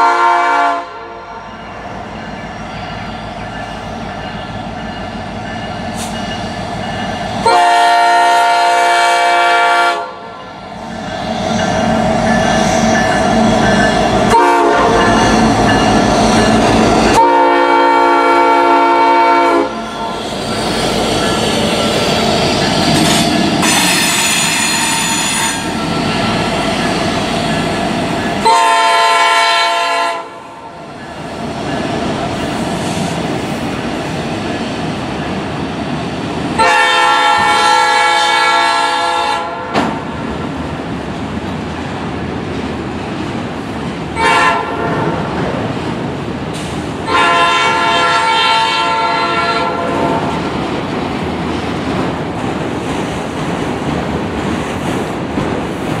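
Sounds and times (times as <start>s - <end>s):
train air horn blasts: 0.0s - 1.5s, 7.4s - 10.4s, 14.2s - 15.4s, 17.1s - 20.4s, 23.0s - 25.8s, 28.4s - 30.7s, 36.6s - 39.8s, 44.2s - 45.3s, 47.0s - 50.5s
train cars rumbling and clacking: 0.0s - 56.0s
high squeal: 10.9s - 14.1s, 19.8s - 27.6s.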